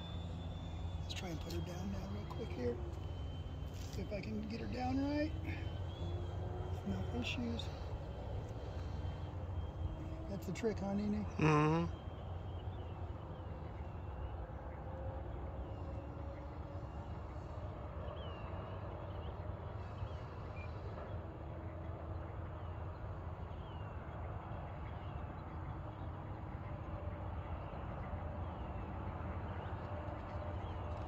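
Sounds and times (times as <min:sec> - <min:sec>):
electric motor whine: 0:00.0 - 0:12.0
bird chirping: 0:00.0 - 0:14.7.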